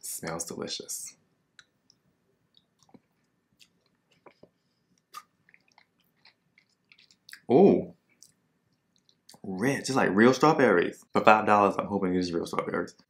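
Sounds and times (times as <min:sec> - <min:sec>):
person chewing: 0:01.6 - 0:07.5, 0:08.1 - 0:09.4.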